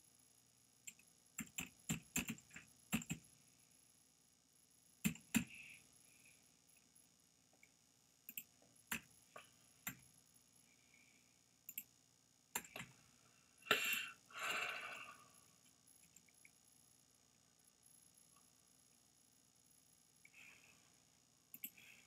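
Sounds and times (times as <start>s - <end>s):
computer mouse clicks: 0.9s - 3.2s, 5.0s - 5.7s, 7.6s - 10.1s, 11.7s - 11.9s, 12.5s - 13.0s, 21.5s - 21.9s
keyboard key presses: 1.4s - 3.2s.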